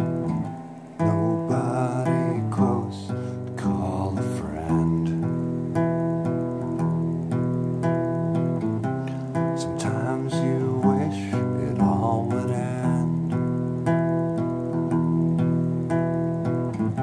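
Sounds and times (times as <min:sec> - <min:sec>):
acoustic guitar strumming: 0:00.0 - 0:17.0
man singing: 0:01.0 - 0:05.2, 0:09.6 - 0:13.3.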